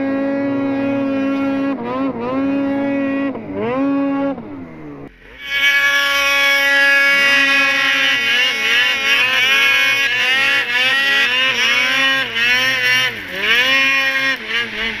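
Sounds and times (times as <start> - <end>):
snowmobile engine revving: 0.0 - 15.0.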